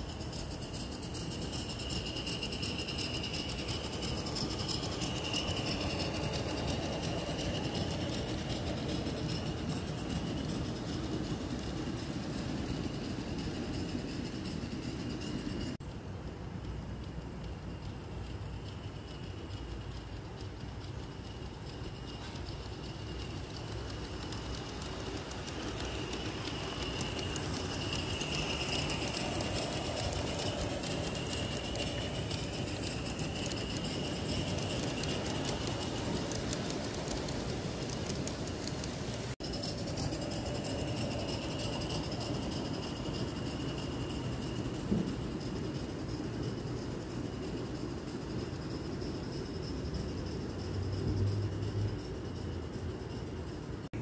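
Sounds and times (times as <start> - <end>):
model train wheels clicking: 0.0 - 54.0
steady high-pitched tone: 19.6 - 38.6.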